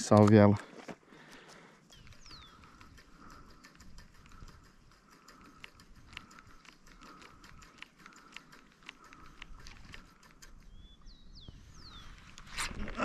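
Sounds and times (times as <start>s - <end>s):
fishing reel clicking: 2.1s - 10.6s.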